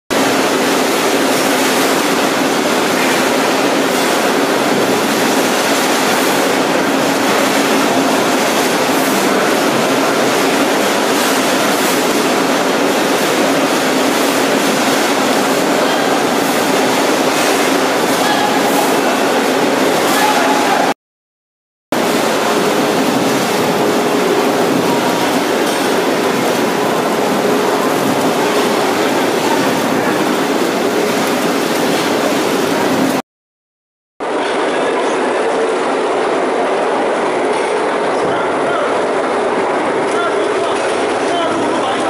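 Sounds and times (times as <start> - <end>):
rotating drum machine rumbling: 0.2 - 20.9, 22.0 - 33.2.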